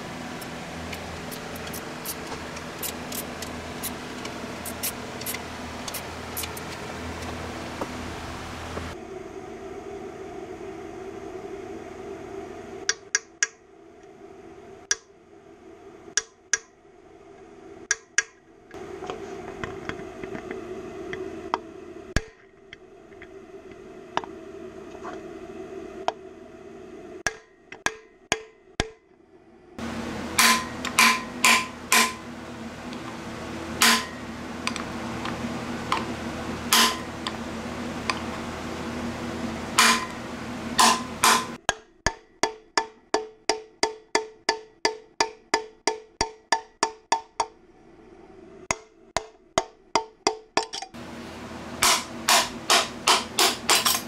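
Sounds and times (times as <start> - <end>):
hammer tapping metal: 27.3 - 29.0, 30.4 - 32.2, 33.8 - 34.2, 36.7 - 37.1, 39.8 - 40.2, 40.8 - 47.6, 51.8 - 54.0.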